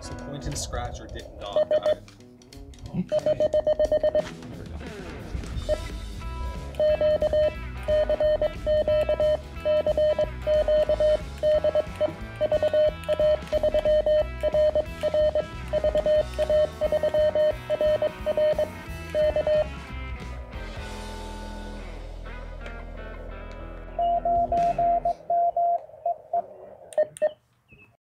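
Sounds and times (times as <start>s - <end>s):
music with guitar and drums: 0.0s - 25.2s
morse code beeps: 1.4s - 2.0s, 3.1s - 4.2s, 5.7s - 5.9s, 6.8s - 19.7s, 24.0s - 26.2s.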